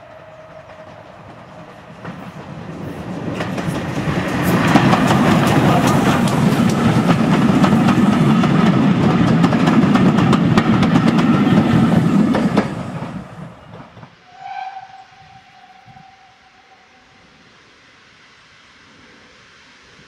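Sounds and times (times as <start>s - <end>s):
distant steam whistle: 0.0s - 1.7s, 14.2s - 17.9s
train wheels clicking over rail joints: 0.2s - 14.2s.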